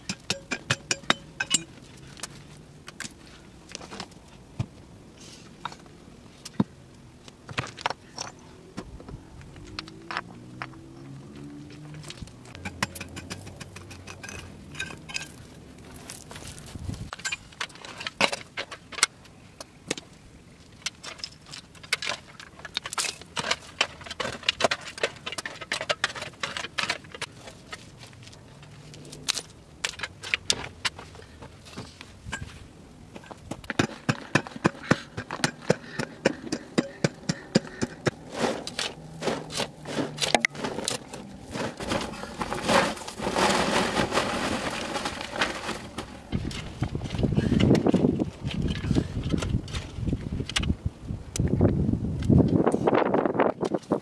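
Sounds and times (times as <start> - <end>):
stones clinking and scraping: 11.9 - 19.1, 20.7 - 50.0.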